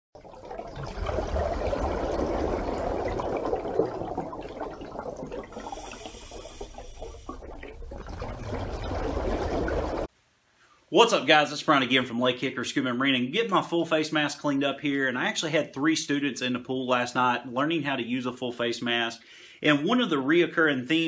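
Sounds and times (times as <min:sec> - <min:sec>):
water bubbling and pouring: 0:00.2 - 0:10.1.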